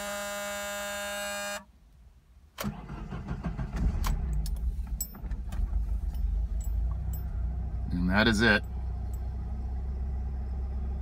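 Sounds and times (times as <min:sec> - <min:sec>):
dashboard warning buzzer: 0:00.0 - 0:01.6
car engine starting and idling: 0:02.5 - 0:11.0.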